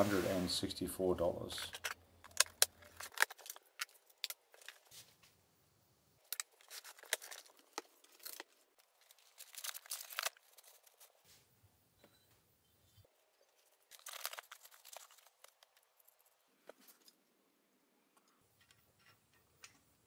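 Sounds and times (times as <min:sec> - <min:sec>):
plastic wrap crinkling: 0:01.6 - 0:05.1, 0:06.2 - 0:11.2, 0:13.2 - 0:17.1.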